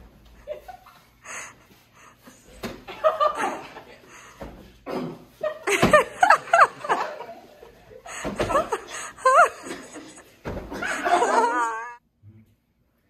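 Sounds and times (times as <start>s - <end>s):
people laughing: 0.4s - 1.6s, 2.6s - 4.4s, 5.3s - 12.0s.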